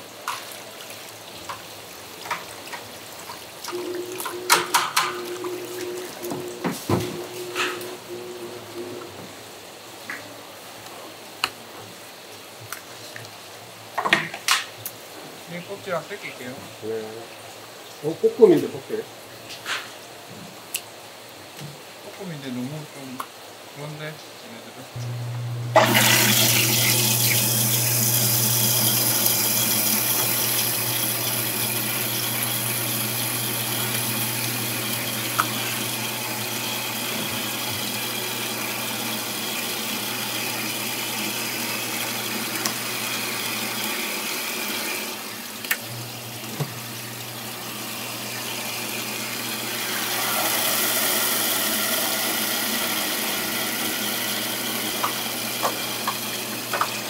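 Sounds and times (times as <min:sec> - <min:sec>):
tap water running: 0:00.0 - 0:09.5, 0:25.0 - 0:57.0
low steady hum: 0:03.7 - 0:09.2, 0:24.9 - 0:28.9.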